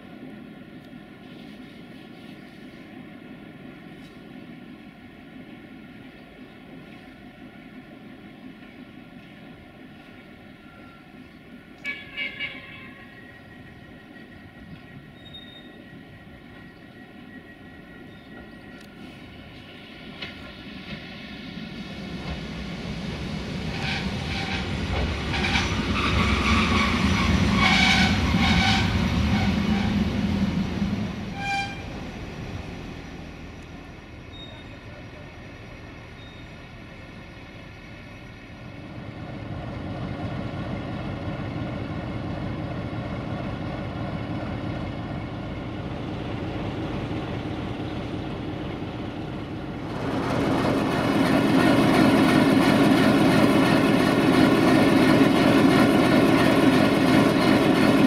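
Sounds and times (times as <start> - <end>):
diesel railcar engine rumble: 0.0 - 58.0
high brake squeals: 11.9 - 18.7, 31.3 - 32.0, 34.2 - 36.8.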